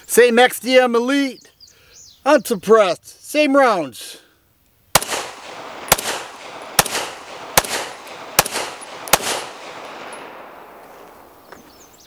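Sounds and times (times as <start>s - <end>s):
pistol shots echoing: 4.9s - 11.4s.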